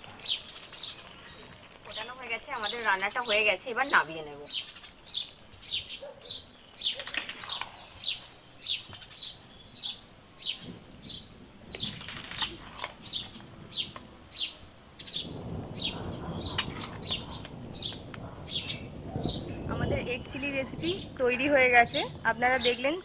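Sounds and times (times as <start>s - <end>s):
bird chirping: 4.4s - 21.2s.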